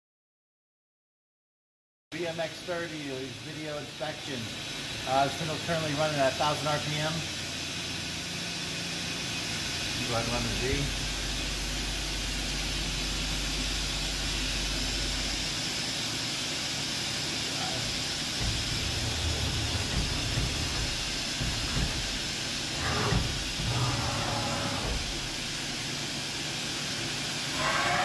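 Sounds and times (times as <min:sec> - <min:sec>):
machine spindle hissing: 0:03.0 - 0:28.0
low hum: 0:17.6 - 0:25.8
uneven low rumbling: 0:17.6 - 0:25.8.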